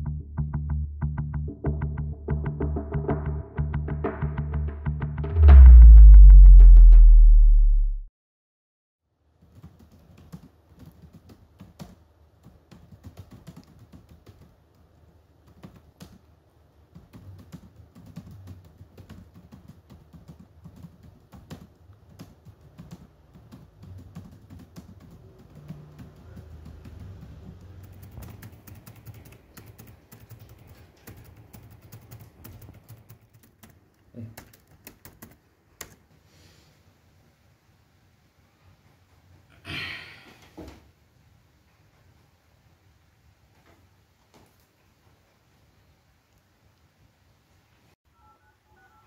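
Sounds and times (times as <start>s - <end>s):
laptop keyboard typing: 9.4s - 36.1s.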